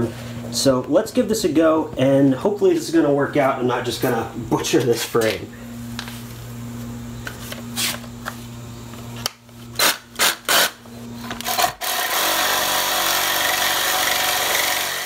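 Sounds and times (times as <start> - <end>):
reciprocating saw cutting metal: 11.6 - 15.0.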